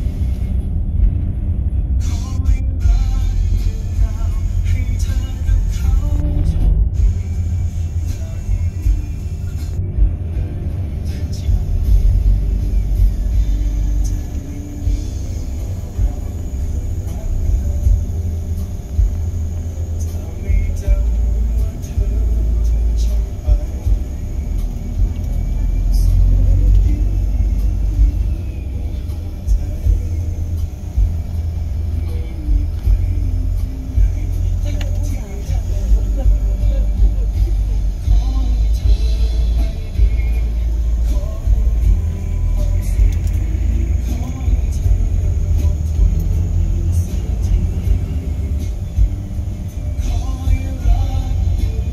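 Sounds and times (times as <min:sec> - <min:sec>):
vehicle rumble from inside cabin: 0:00.0 - 0:51.9.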